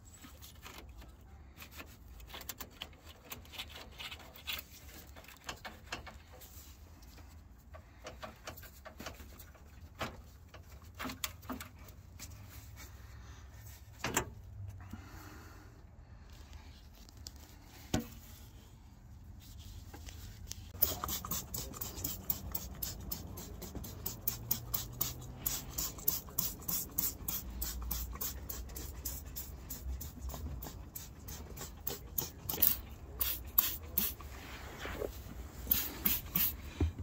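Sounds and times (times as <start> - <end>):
quick rhythmic rubbing strokes: 19.4 - 36.8.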